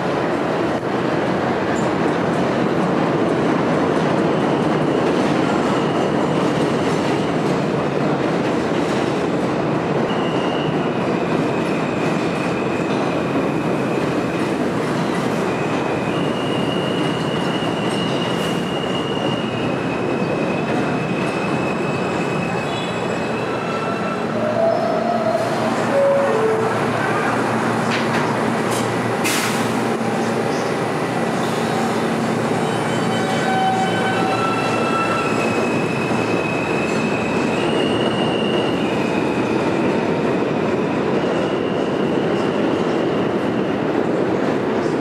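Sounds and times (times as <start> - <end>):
subway train wheels rumbling: 0.0 - 45.0
high wheel squeals: 15.7 - 27.3, 31.4 - 39.5.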